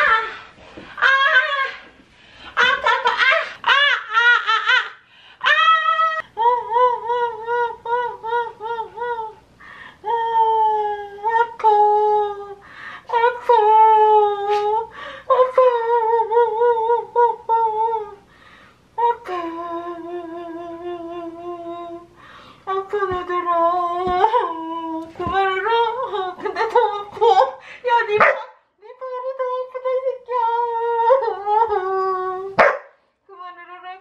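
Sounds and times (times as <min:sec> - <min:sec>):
woman crying muffled: 0:02.6 - 0:09.3.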